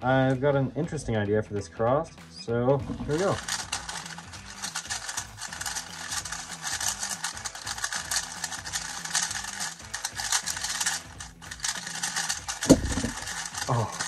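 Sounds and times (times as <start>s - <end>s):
puzzle cube clicking while turned: 2.9s - 14.0s.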